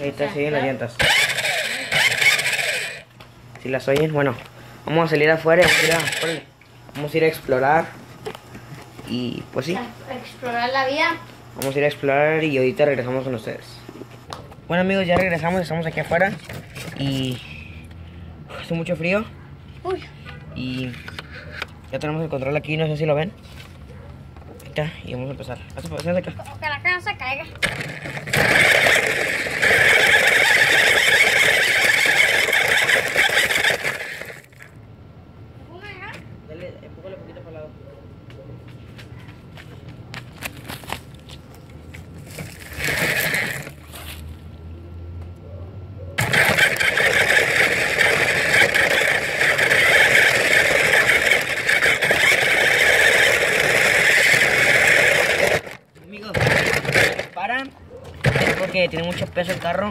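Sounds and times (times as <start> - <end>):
wheels grinding on ground: 0.0 - 18.0, 27.5 - 34.8, 38.9 - 44.7, 46.1 - 59.9
toy car electric motor whirring: 0.6 - 3.1, 4.8 - 7.4, 27.6 - 34.8, 42.2 - 44.3, 46.2 - 57.5, 58.2 - 59.7.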